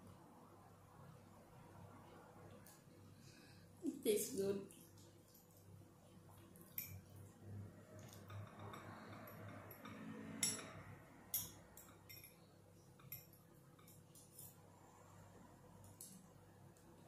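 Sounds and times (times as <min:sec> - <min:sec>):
cutlery clinking against ceramic bowls: 0:08.0 - 0:12.4, 0:13.0 - 0:14.6.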